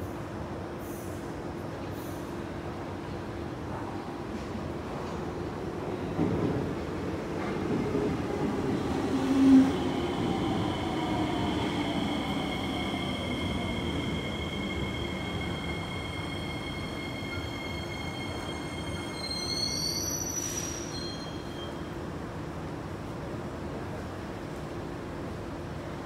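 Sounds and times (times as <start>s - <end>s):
high squealing tones: 10.7s - 21.6s.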